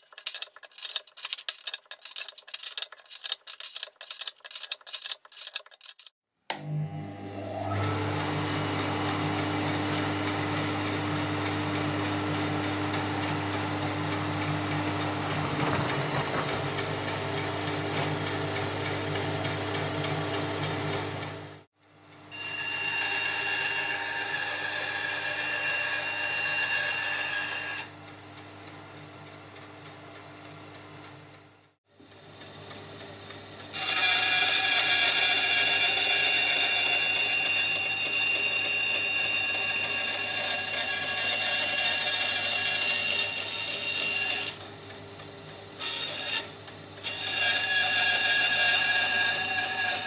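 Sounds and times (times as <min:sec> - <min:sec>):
bandsaw running: 0:07.3 - 0:21.4, 0:22.4 - 0:27.9, 0:33.7 - 0:44.7.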